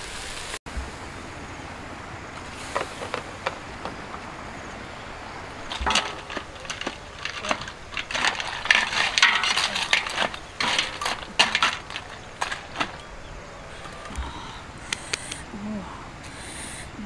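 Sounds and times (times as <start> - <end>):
metal utensil scraping in wok: 5.7 - 13.1.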